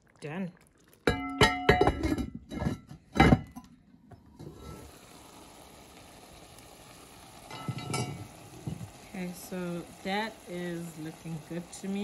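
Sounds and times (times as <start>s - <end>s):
pot lid clanking: 1.1s - 3.6s, 7.5s - 9.0s
curry simmering hiss: 4.3s - 12.0s.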